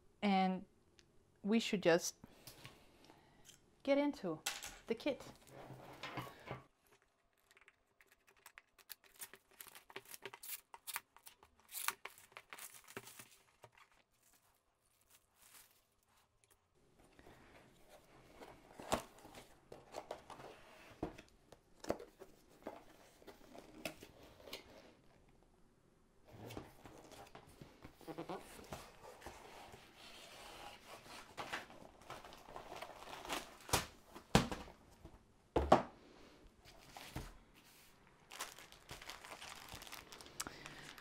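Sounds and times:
plastic packaging crinkling: 0:06.8 - 0:16.6, 0:31.8 - 0:34.0, 0:38.0 - 0:41.0.

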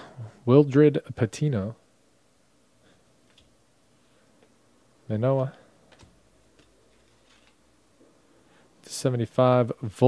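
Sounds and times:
trading cards being flipped through: 0:05.9 - 0:07.6.

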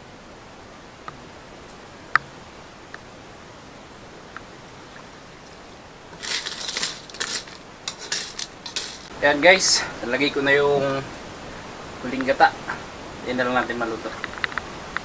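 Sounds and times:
faint steady hiss: 0:00.0 - 0:15.0
metal spatula scraping a wok: 0:06.1 - 0:09.1.

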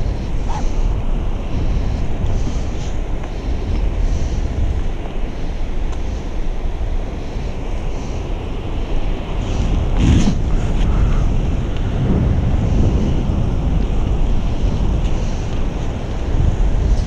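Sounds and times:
wheels rolling over wet sand: 0:00.0 - 0:17.0
wind buffeting microphone: 0:00.0 - 0:17.0.

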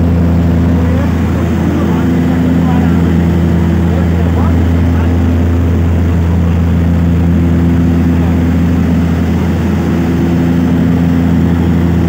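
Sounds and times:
propeller airplane engines in cabin: 0:00.0 - 0:12.0.

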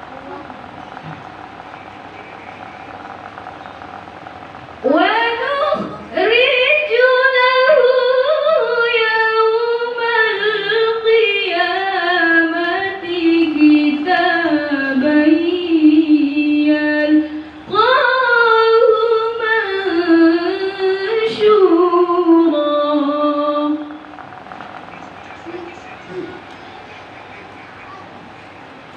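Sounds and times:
woman chanting melodically: 0:04.8 - 0:24.2.

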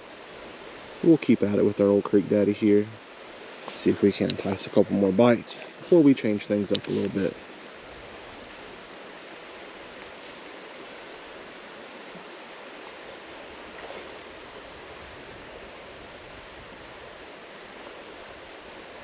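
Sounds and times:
creek rushing over rocks: 0:00.0 - 0:19.0
soft rustle: 0:05.4 - 0:14.5.

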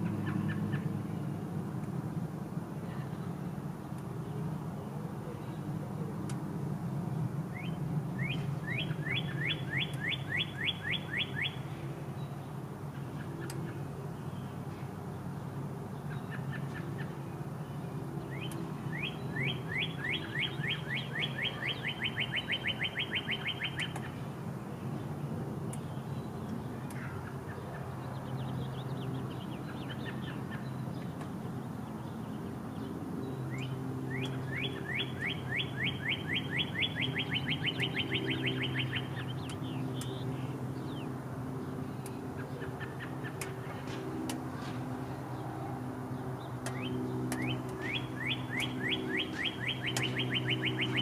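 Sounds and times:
songbird trilling: 0:07.5 - 0:12.4, 0:18.3 - 0:24.2, 0:33.5 - 0:41.1, 0:46.1 - 0:51.0
faint bird calls: 0:18.3 - 0:24.2, 0:26.5 - 0:31.2, 0:33.5 - 0:41.0, 0:41.8 - 0:51.0.

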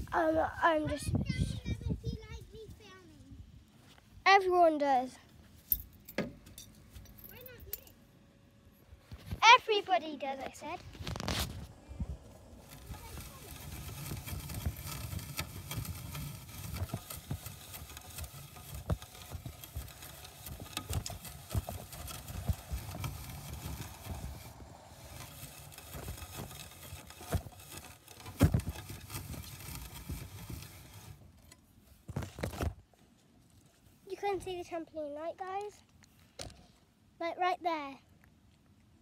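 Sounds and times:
wind rumbling on microphone: 0:00.0 - 0:02.7, 0:10.8 - 0:17.0.

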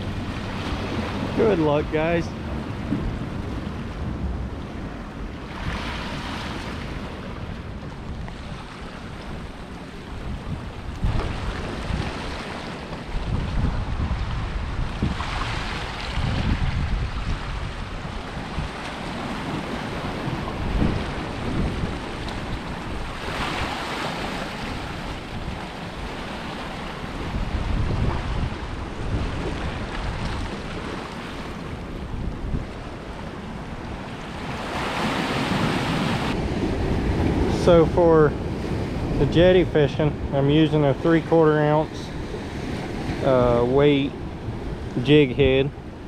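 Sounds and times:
surf washing against rocks: 0:00.0 - 0:46.0
wind rumble on microphone: 0:00.0 - 0:46.0.

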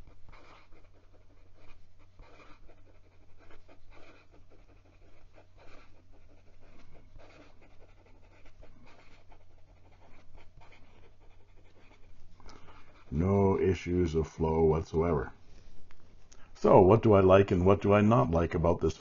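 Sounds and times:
pen nib scratching on paper: 0:00.0 - 0:13.7.

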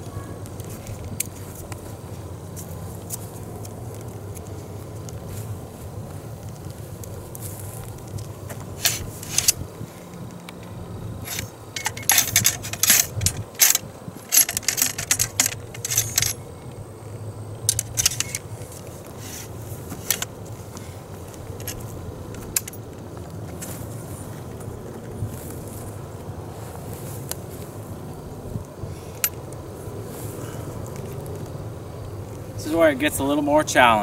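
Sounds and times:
low wind rumble: 0:00.0 - 0:34.0
ramrod clinking in rifle barrel: 0:08.8 - 0:09.6, 0:10.5 - 0:16.7, 0:17.6 - 0:18.8, 0:21.4 - 0:22.8.

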